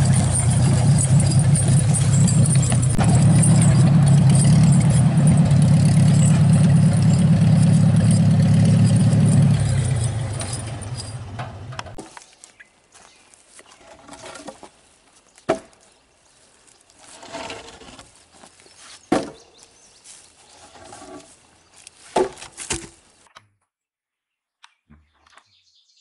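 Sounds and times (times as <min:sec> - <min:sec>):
wood scraping and rustling: 0:00.0 - 0:23.3
wooden knocks of logs landing: 0:15.4 - 0:15.9, 0:19.1 - 0:19.5, 0:22.0 - 0:23.0.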